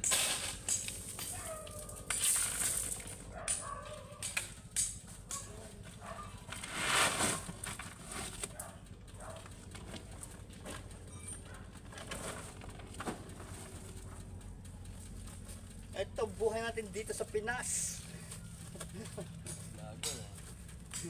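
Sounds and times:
shovel scraping into gravel: 0:00.0 - 0:03.2, 0:06.6 - 0:08.4
stones rattling and pouring: 0:00.0 - 0:03.3.

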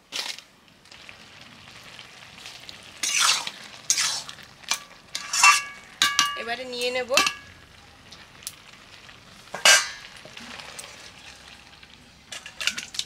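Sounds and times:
faint sizzle: 0:00.0 - 0:13.0
spatula scraping and stirring in pan: 0:01.7 - 0:06.4, 0:09.3 - 0:13.0.

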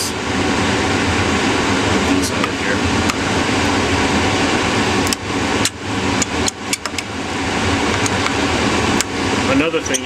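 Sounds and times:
room noise hum: 0:00.0 - 0:10.0
screwdriver tapping metal: 0:06.2 - 0:07.1.

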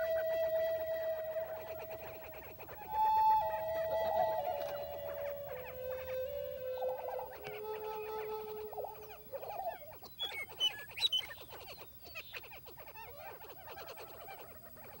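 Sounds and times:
high whistled bird notes: 0:00.0 - 0:11.8
birds clucking and cackling: 0:00.0 - 0:15.0.

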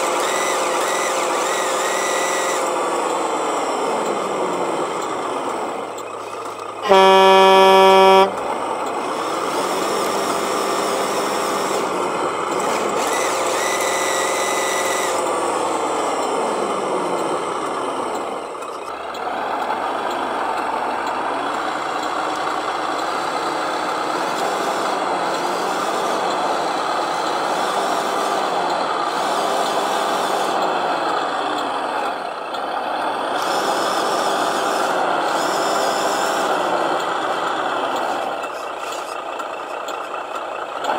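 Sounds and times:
truck engine revving: 0:00.0 - 0:40.9
truck horn: 0:00.2 - 0:02.7, 0:06.8 - 0:08.6, 0:13.0 - 0:15.3.

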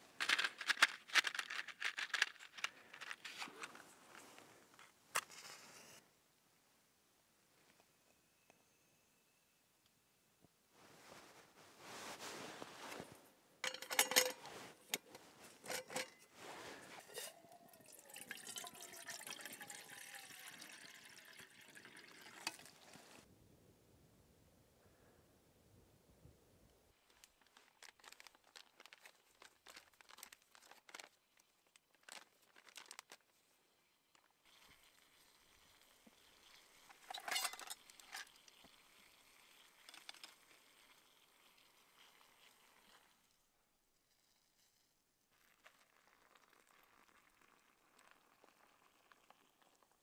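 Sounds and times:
faint steady hiss: 0:02.5 - 0:50.0
metal cookset clinking: 0:13.6 - 0:15.0, 0:15.6 - 0:16.3, 0:37.1 - 0:38.3
water pouring into metal pot: 0:16.9 - 0:23.3, 0:34.5 - 0:43.4, 0:45.4 - 0:50.0.

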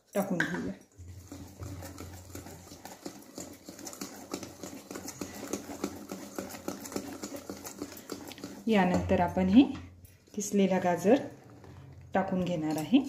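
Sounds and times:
whisk clicking against bowl: 0:01.0 - 0:10.0.

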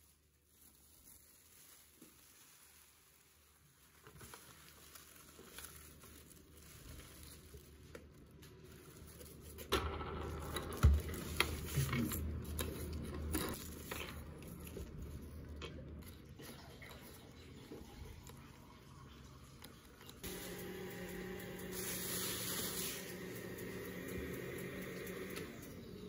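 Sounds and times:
food sizzling in a pan: 0:20.2 - 0:24.6.

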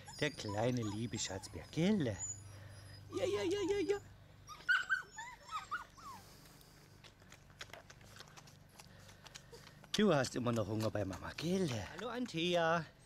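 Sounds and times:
puppy whimpering: 0:00.0 - 0:06.3.

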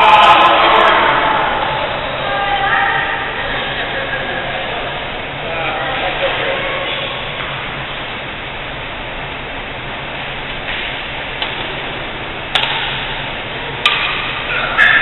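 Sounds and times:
steady hiss and low hum: 0:00.0 - 0:15.0
racket hitting shuttlecock: 0:12.5 - 0:13.2, 0:13.8 - 0:15.0.

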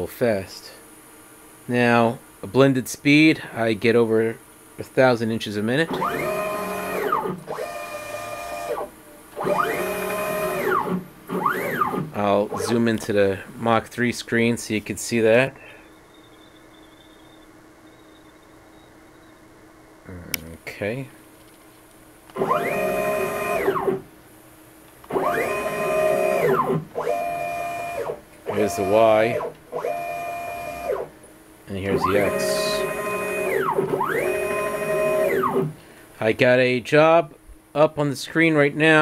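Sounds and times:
stepper motors whining: 0:05.9 - 0:12.8, 0:22.4 - 0:24.0, 0:25.0 - 0:31.1, 0:31.9 - 0:35.7.

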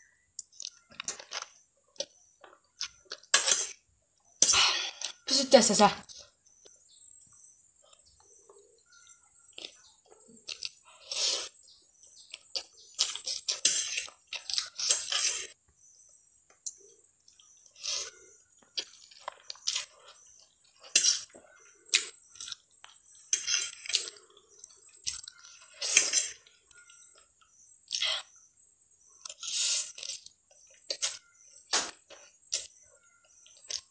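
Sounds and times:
slurping noodles: 0:10.9 - 0:11.7.

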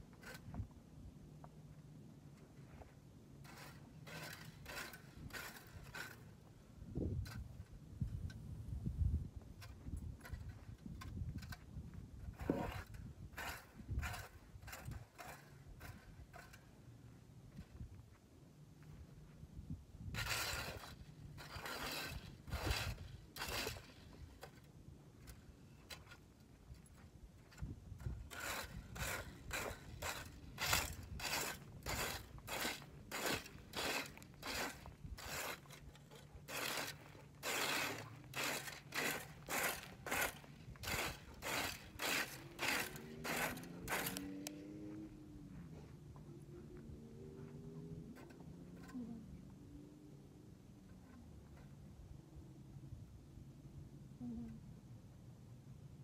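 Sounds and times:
rake scraping dry grass: 0:00.0 - 0:00.7, 0:02.4 - 0:08.4, 0:09.6 - 0:17.6, 0:20.0 - 0:45.2.

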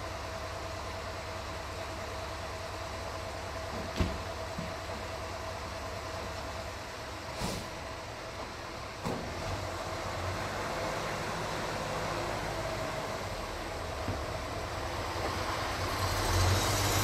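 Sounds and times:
fire engine diesel rumble: 0:00.0 - 0:17.0
short hiss: 0:07.4 - 0:07.8.

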